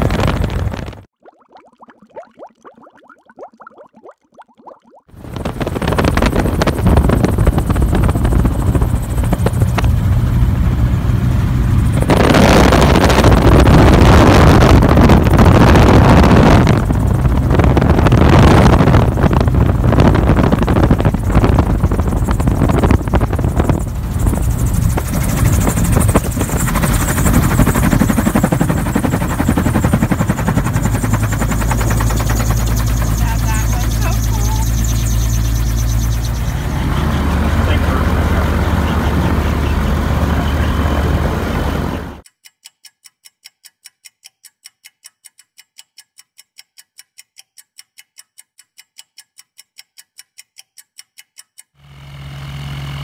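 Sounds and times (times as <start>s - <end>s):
aircraft engine and propeller: 0.0s - 1.1s, 5.2s - 42.2s, 51.8s - 53.0s.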